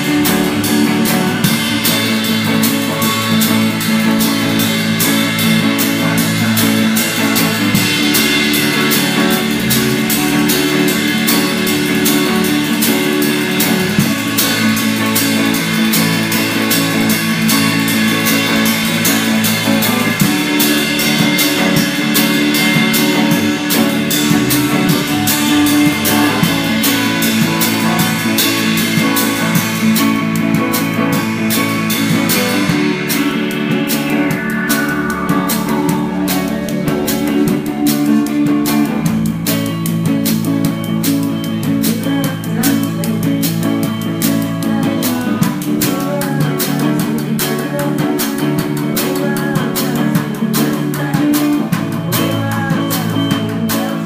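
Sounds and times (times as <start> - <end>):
falling sweep: 0.0 - 39.7
guitars: 0.0 - 54.0
steady drum beat: 0.0 - 54.0.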